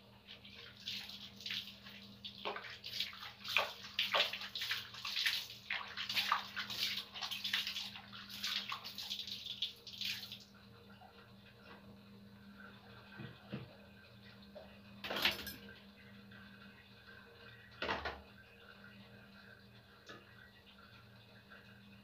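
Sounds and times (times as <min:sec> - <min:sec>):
water splashing over person bathing: 0:00.3 - 0:10.5.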